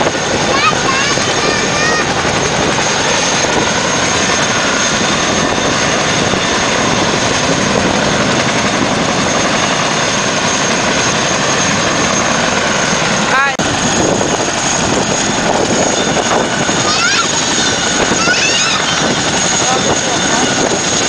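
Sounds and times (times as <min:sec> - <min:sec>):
helicopter rotor and turbine: 0:00.0 - 0:21.0.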